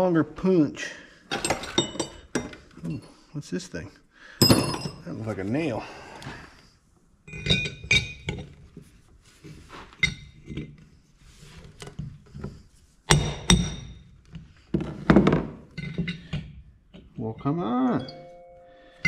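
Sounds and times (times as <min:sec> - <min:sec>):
metal tools clinking on metal: 0:01.3 - 0:03.1, 0:17.2 - 0:18.6.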